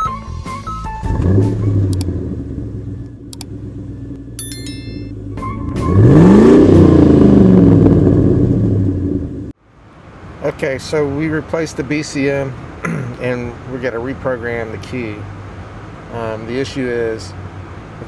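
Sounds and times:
car engine revving: 1.1s - 4.4s, 5.2s - 9.5s
ringing chime: 4.4s - 5.2s.

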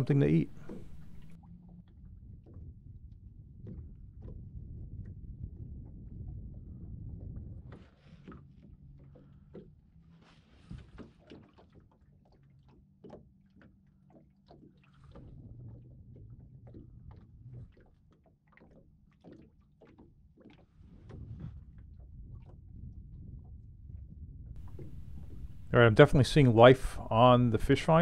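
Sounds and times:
low steady hum: 0.0s - 1.4s, 24.0s - 28.0s
water lapping against boat hull: 0.0s - 28.0s.

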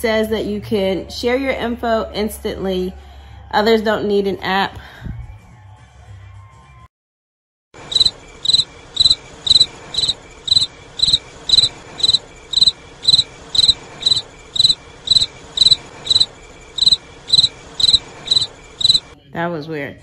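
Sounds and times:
cricket chirping: 7.8s - 19.2s.

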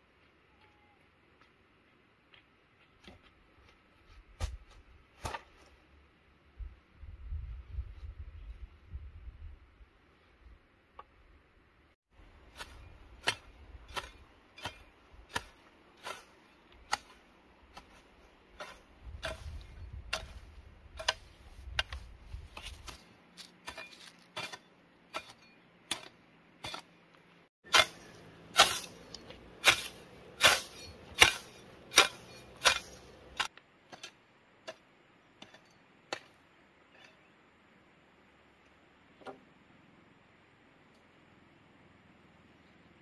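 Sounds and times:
hoe chopping into soil: 4.4s - 5.7s, 12.5s - 18.0s, 18.6s - 26.9s, 27.7s - 34.8s.

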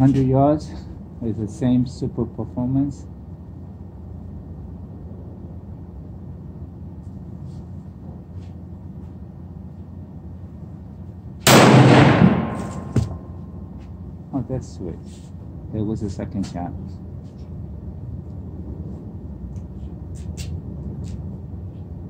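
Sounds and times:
low background hum: 0.0s - 22.0s
rifle shot: 11.4s - 13.2s.

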